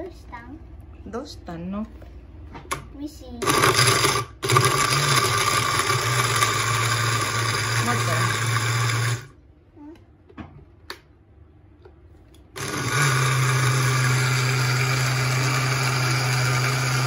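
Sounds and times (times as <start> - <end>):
blender motor running: 3.4 - 9.4, 12.6 - 17.0.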